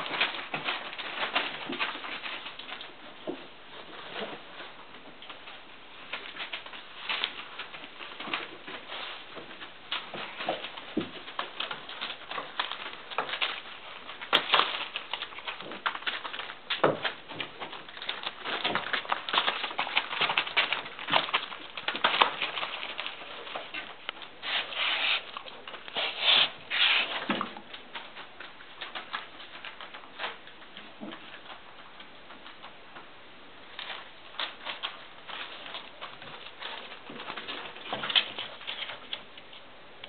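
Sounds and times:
puppy paws pattering: 0:00.0 - 0:40.0
newspaper crinkling and rustling: 0:06.0 - 0:31.7.

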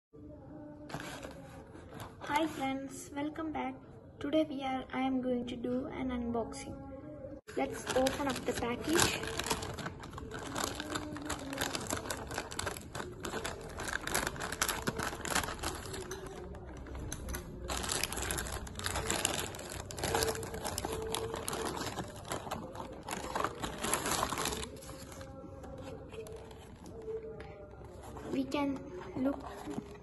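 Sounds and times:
plastic bag crinkling and tearing: 0:07.6 - 0:27.1.

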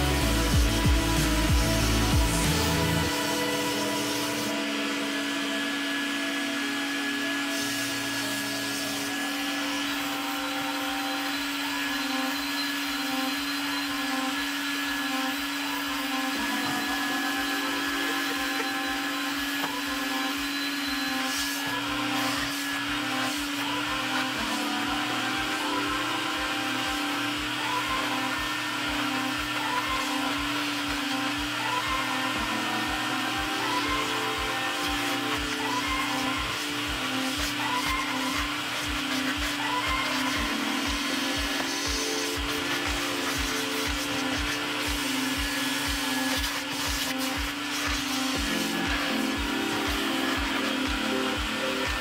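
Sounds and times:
vacuum motor whining: 0:00.0 - 0:52.0
hand tool scrubbing wet carpet: 0:37.3 - 0:51.6.

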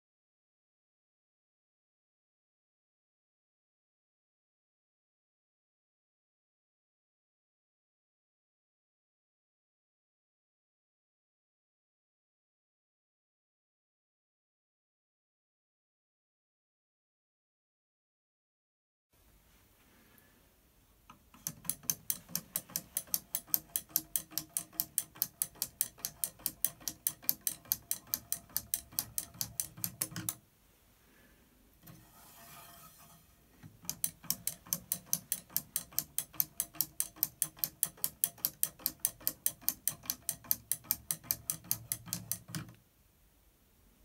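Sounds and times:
wooden arms clicking on a rod: 0:21.1 - 0:30.4, 0:31.8 - 0:42.8.

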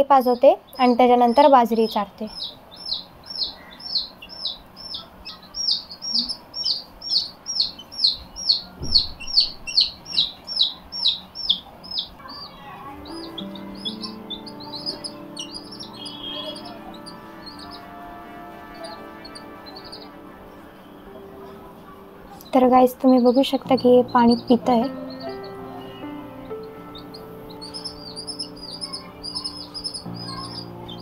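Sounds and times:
chick peeping: 0:00.2 - 0:31.0
background music: 0:12.2 - 0:31.0.

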